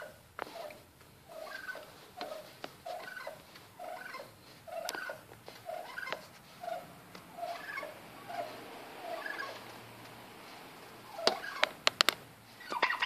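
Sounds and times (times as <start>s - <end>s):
turkey giving soft calls: 0.0s - 9.8s, 10.9s - 11.9s, 12.5s - 13.0s
sharp clicks: 11.2s - 12.2s.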